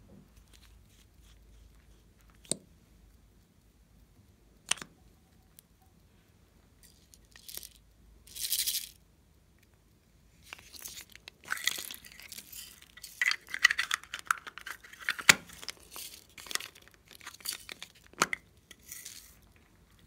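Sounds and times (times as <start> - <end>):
small plastic clicks: 4.6 - 5.7.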